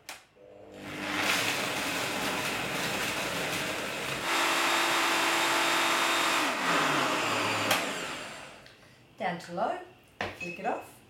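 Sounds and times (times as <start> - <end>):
blender whining: 0.4 - 8.7.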